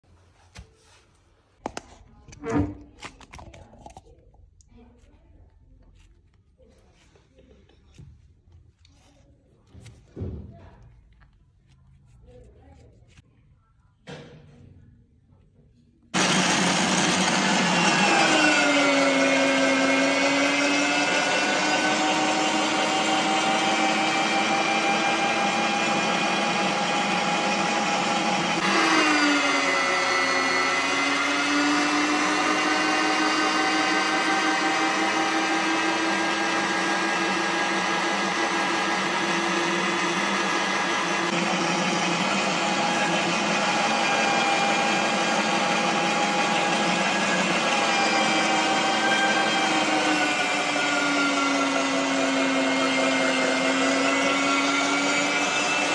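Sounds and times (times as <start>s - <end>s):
meat grinder motor whine: 16.2s - 55.9s.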